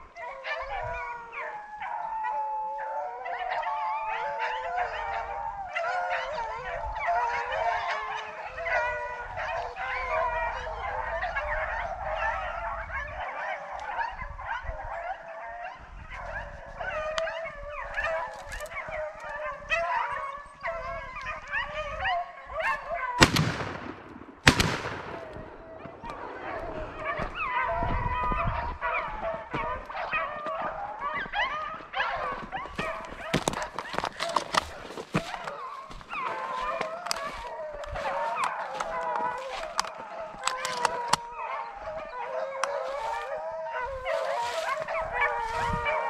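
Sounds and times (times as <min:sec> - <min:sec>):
dogs baying: 0:00.0 - 0:24.0, 0:24.6 - 0:46.0
shotgun shots: 0:23.2 - 0:26.1.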